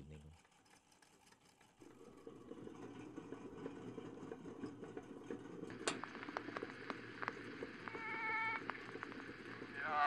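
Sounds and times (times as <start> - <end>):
phonograph mechanical whir: 0.0 - 10.0
needle crackling on wax: 5.7 - 10.0.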